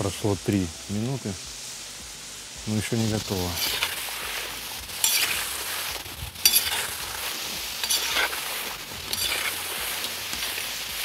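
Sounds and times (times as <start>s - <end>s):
potatoes sizzling in hot oil: 0.0s - 11.0s
metal spatula stirring: 3.6s - 11.0s.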